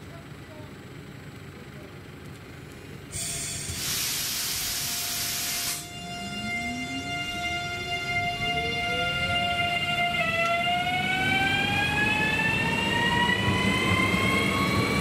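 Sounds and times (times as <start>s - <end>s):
loud compressed air hiss: 3.1s - 5.9s
electric train motor whine: 3.1s - 15.0s.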